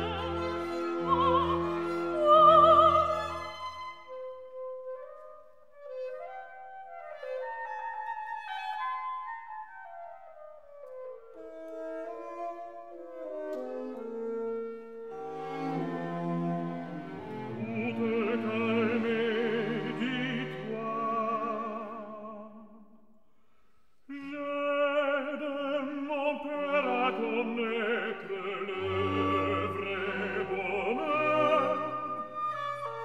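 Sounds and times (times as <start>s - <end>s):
operatic singing with vibrato: 0.0s - 4.1s, 15.8s - 22.7s, 24.1s - 33.0s
orchestra: 0.0s - 22.6s, 24.1s - 33.0s.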